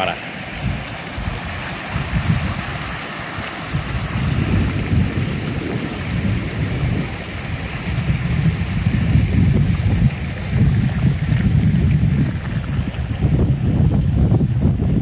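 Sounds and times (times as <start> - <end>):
flood water rushing: 0.0 - 15.0
wind rumbling on microphone: 0.0 - 15.0.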